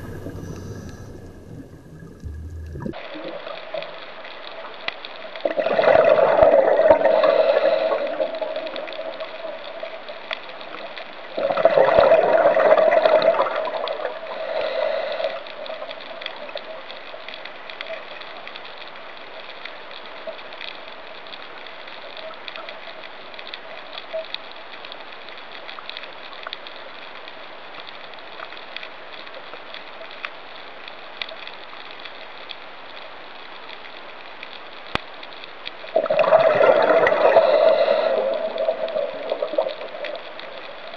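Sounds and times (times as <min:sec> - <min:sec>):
exhaled bubbles gurgling: 0:00.0 - 0:04.3, 0:05.3 - 0:16.9, 0:35.9 - 0:40.9
steady underwater hiss: 0:00.0 - 0:40.9
faint clicks: 0:07.7 - 0:11.3, 0:15.2 - 0:40.9.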